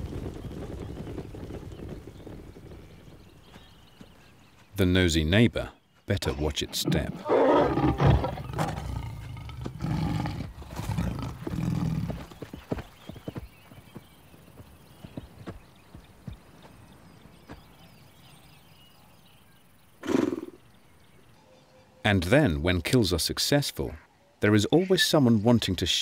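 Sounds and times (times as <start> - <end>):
hooves galloping: 0.0 - 4.8, 5.5 - 18.0.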